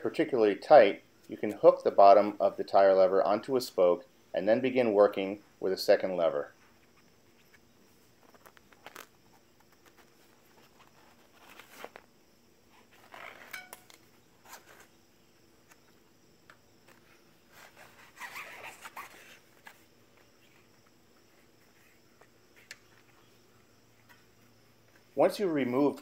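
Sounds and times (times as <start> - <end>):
tire lever scraping bicycle rim: 12.8 - 14.9.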